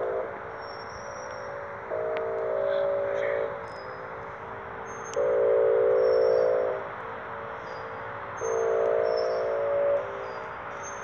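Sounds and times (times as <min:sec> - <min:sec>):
warning siren air-horn blasts: 0:00.0 - 0:00.6, 0:01.4 - 0:03.7, 0:05.1 - 0:07.0, 0:08.4 - 0:10.4.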